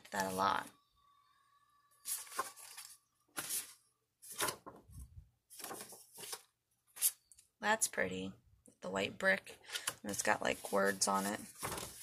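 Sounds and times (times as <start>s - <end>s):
paper and plastic rustling: 2.1s - 4.8s, 5.5s - 6.5s, 10.1s - 12.0s.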